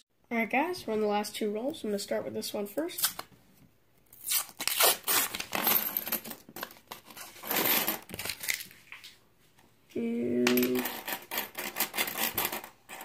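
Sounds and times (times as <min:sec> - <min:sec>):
coins clinking on wooden table: 0:05.5 - 0:06.8, 0:10.5 - 0:13.0.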